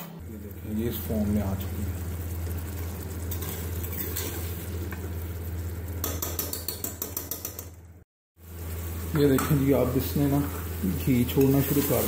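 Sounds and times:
curry sizzling: 0.2 - 12.0
ladle stirring and scraping pot: 2.8 - 5.1, 10.4 - 12.0.

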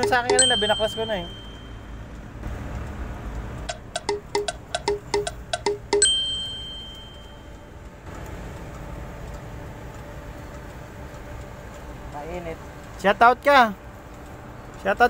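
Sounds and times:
metallic ding: 0.0 - 1.9, 3.7 - 7.5.

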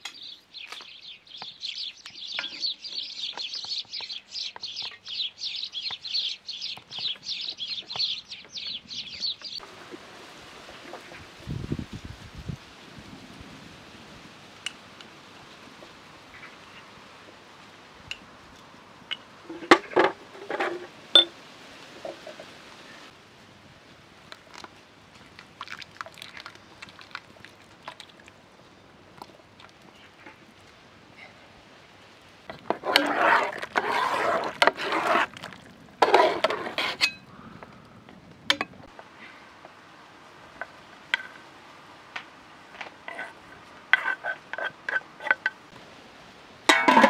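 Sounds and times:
spoons scraping metal pot: 32.5 - 37.3, 43.1 - 45.6.

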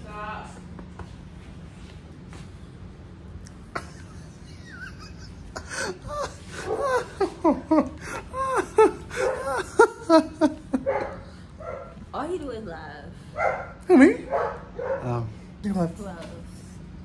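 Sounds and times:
person laughing hard: 3.7 - 10.9.

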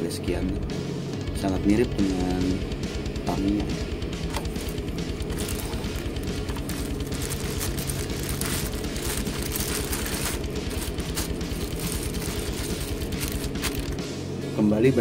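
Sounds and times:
background music: 0.0 - 15.0
plastic packaging crinkling: 4.4 - 14.0.

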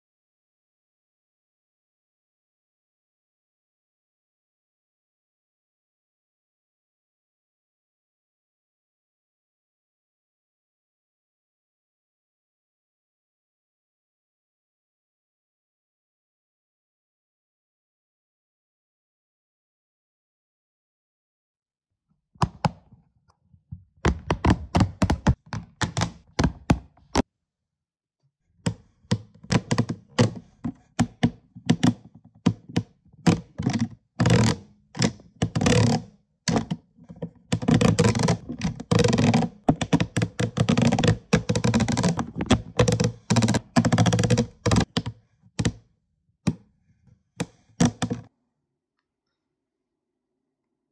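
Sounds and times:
silicone suction cups popping: 24.0 - 27.2, 28.6 - 45.8, 47.4 - 48.3.

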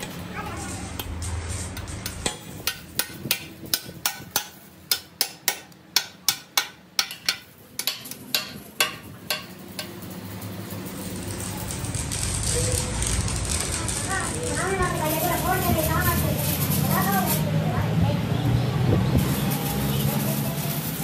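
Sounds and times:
hammer striking steel chisel: 1.8 - 10.0.

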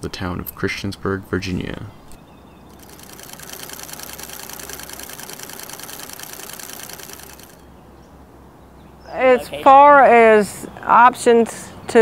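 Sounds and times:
fast mechanical clatter: 2.7 - 7.7.

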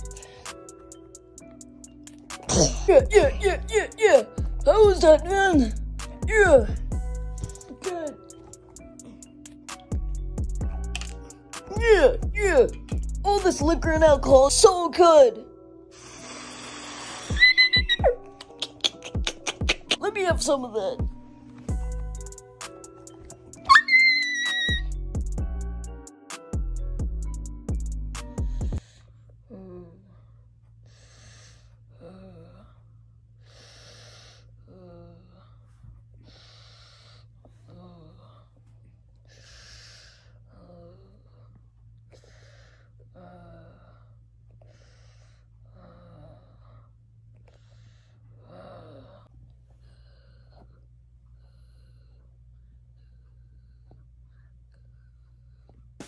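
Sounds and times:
music clip: 0.0 - 14.7, 15.7 - 28.8
person gasping and sighing: 2.5 - 4.4
squeaky vocal gulps: 17.4 - 20.0.

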